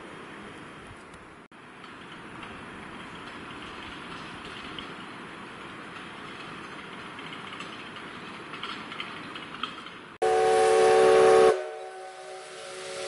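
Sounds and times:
steam locomotive whistle: 10.2s - 13.0s
steam hissing: 10.3s - 13.0s.

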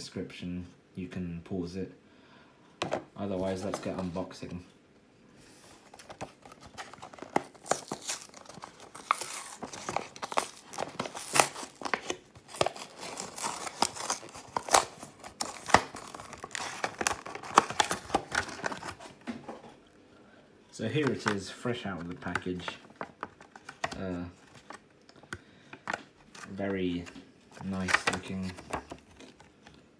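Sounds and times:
plastic blister pack crinkling: 5.9s - 19.1s, 22.0s - 29.8s
cardboard tearing: 6.0s - 19.0s.

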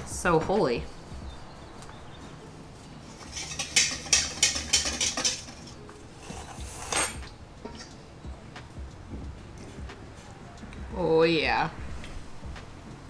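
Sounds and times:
fork clinking against metal pan: 3.2s - 5.7s, 6.9s - 8.0s.

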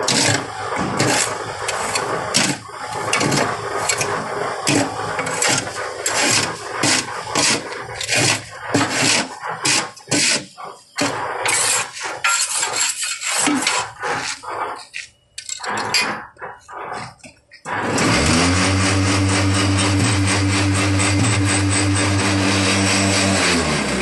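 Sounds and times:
vibrator motors humming: 0.0s - 8.8s, 16.3s - 24.0s
steel rod scraping concrete: 0.0s - 24.0s.

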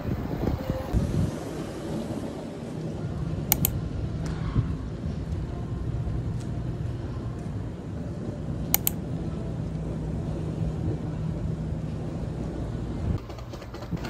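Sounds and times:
faint hum: 0.0s - 13.2s
city traffic rumble: 0.0s - 14.0s
sharp clicks: 3.5s - 3.8s, 8.7s - 9.0s.

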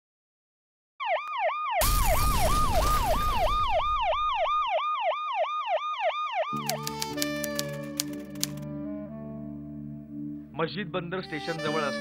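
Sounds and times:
siren yelping: 1.0s - 6.8s.

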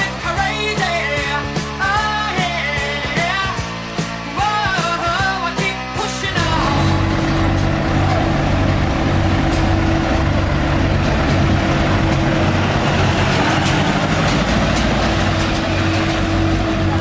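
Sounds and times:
diesel truck engine at low revs: 6.2s - 17.0s
steady hum: 6.2s - 17.0s.

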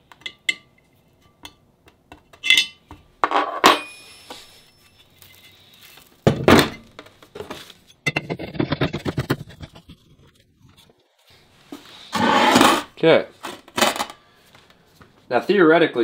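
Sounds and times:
loud scraping noise: 11.9s - 12.9s.

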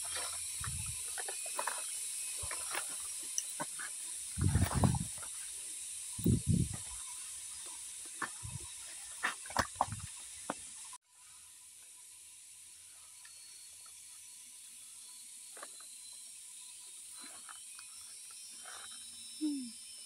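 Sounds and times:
digging soil and stones: 0.0s - 10.8s
steady high hiss: 0.0s - 20.0s.

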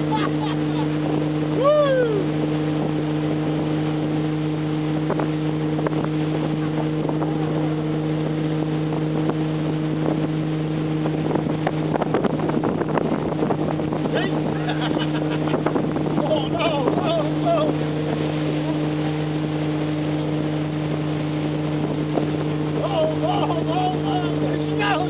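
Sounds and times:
motorboat engine droning: 0.0s - 25.0s
water rushing: 0.0s - 25.0s
wind: 0.0s - 25.0s
person shouting: 1.6s - 2.3s.

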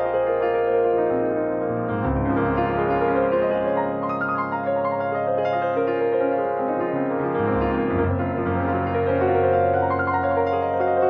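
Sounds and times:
background piano music: 0.0s - 11.0s.

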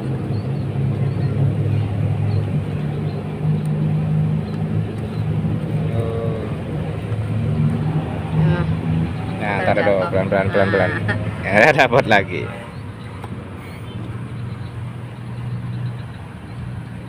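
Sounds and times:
low motor drone: 0.0s - 13.0s.

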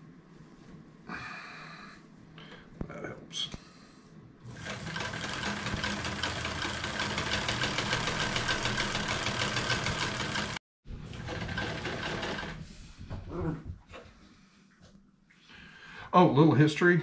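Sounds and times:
sewing machine clattering: 4.5s - 12.6s.

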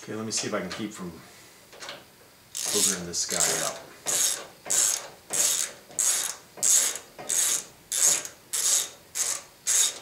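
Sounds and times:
ratchet wrench clicking: 2.6s - 10.0s.

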